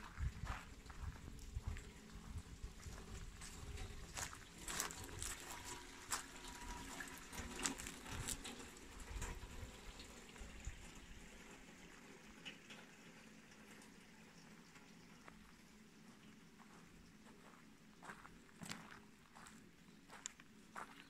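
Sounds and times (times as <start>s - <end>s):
footsteps crunching on forest path: 0.0s - 6.3s, 15.3s - 21.0s
faint trickle of water: 0.0s - 21.0s.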